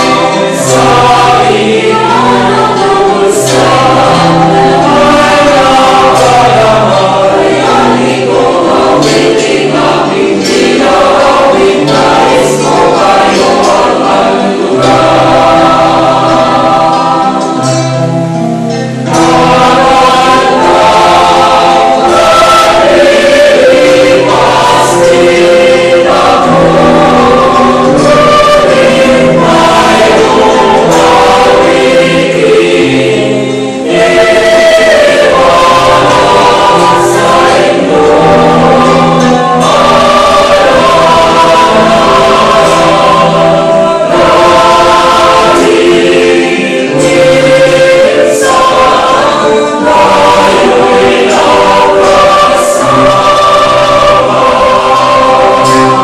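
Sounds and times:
mixed choir singing: 0:00.0 - 0:56.0.

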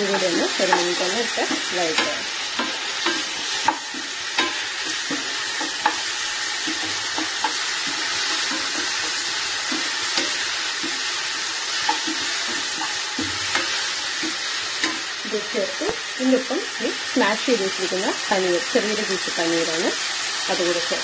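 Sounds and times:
vegetables sizzling in oil: 0:00.0 - 0:21.0
spatula knocking against pan: 0:00.1 - 0:11.1, 0:11.8 - 0:15.0.

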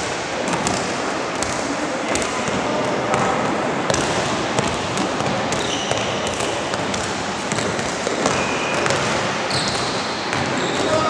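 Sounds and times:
basketball bouncing: 0:00.5 - 0:11.0
sneakers squeaking on court: 0:02.2 - 0:11.0.

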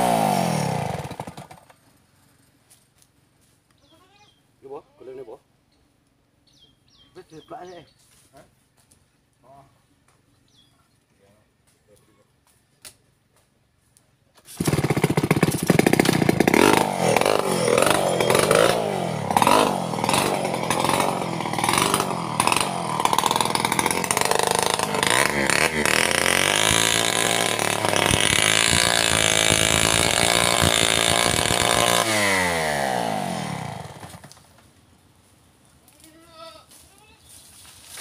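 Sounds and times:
chainsaw revving: 0:00.0 - 0:01.8, 0:14.5 - 0:34.4.

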